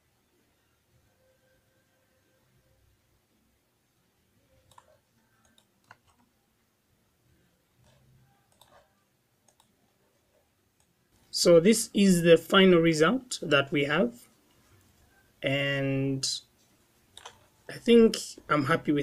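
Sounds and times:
mouse and keyboard clicks: 0:04.7 - 0:06.3, 0:07.8 - 0:09.7, 0:17.2 - 0:17.5.

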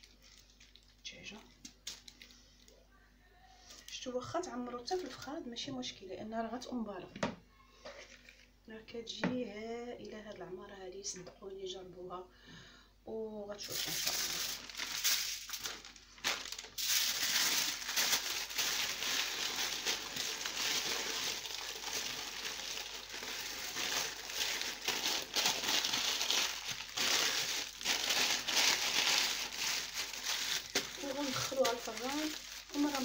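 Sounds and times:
aluminium foil crinkling: 0:00.0 - 0:02.8, 0:13.6 - 0:33.0.

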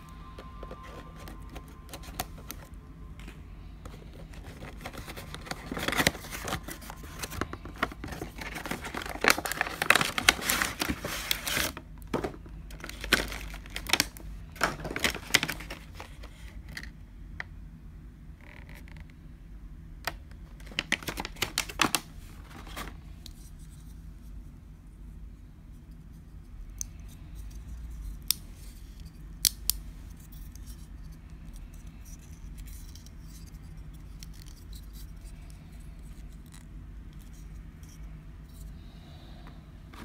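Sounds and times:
steady low hum: 0:00.0 - 0:40.0
plastic blister tray crackling: 0:03.8 - 0:16.8, 0:20.1 - 0:23.0.

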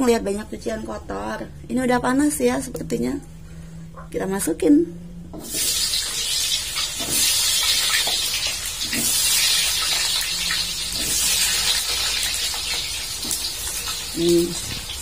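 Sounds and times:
potatoes sizzling in hot oil: 0:05.4 - 0:15.0.

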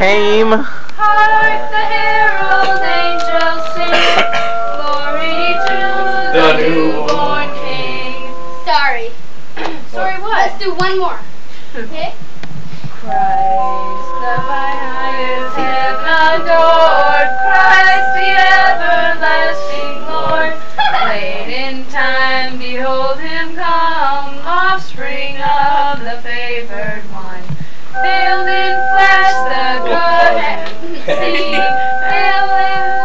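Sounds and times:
held instrument notes: 0:00.0 - 0:09.3, 0:13.0 - 0:24.7, 0:28.0 - 0:33.0
people singing a carol: 0:01.0 - 0:08.8, 0:13.1 - 0:33.0.

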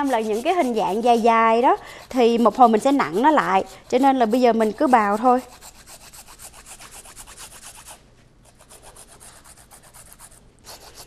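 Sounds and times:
cassava grated on metal grater: 0:00.0 - 0:07.9.

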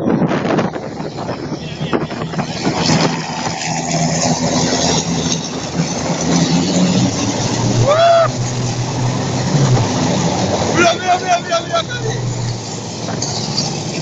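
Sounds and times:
truck diesel engines droning: 0:00.0 - 0:14.0.

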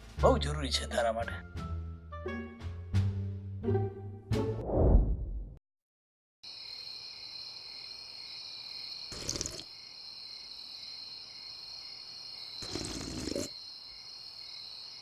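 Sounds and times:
crickets chirping: 0:06.4 - 0:15.0.

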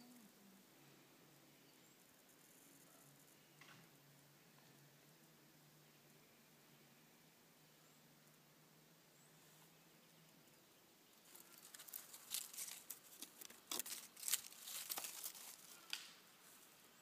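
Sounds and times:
dry leaves and twigs crackling: 0:11.1 - 0:16.9.

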